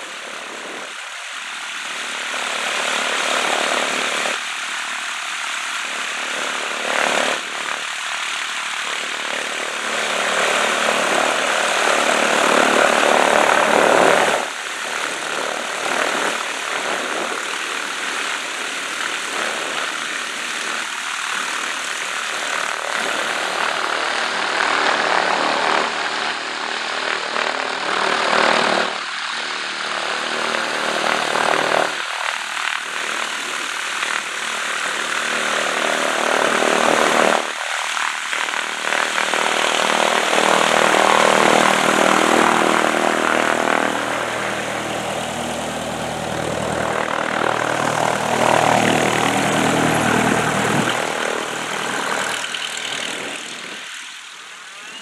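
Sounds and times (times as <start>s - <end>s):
propeller plane engine drone: 0.0s - 55.0s.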